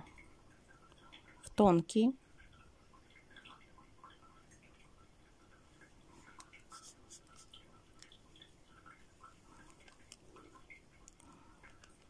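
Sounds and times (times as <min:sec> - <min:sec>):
soft clicks and scratches: 0:03.1 - 0:12.0.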